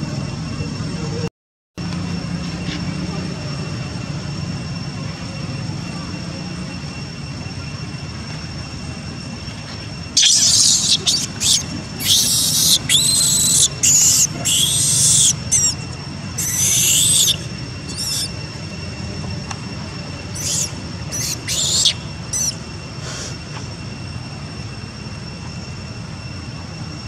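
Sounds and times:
infant monkey screaming: 0:10.2 - 0:18.4, 0:20.2 - 0:23.3.

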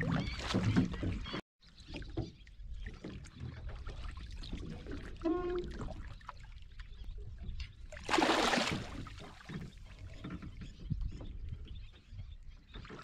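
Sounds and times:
water splashing: 0:08.0 - 0:09.7.

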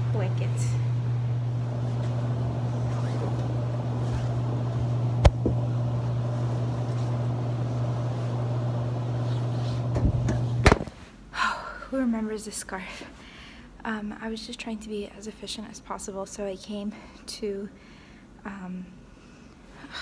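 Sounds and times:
washing machine humming: 0:00.0 - 0:10.8
clothes being loaded: 0:01.8 - 0:05.6.

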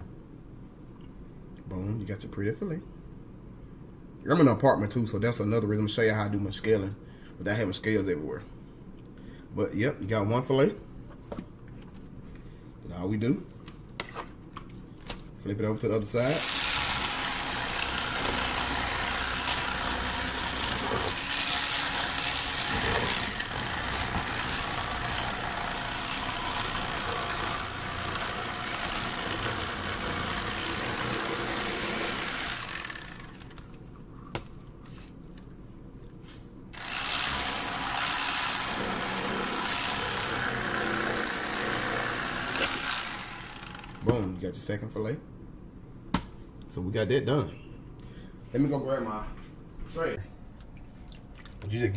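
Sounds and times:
electric fillet knife buzzing: 0:16.2 - 0:33.6, 0:36.8 - 0:44.1.

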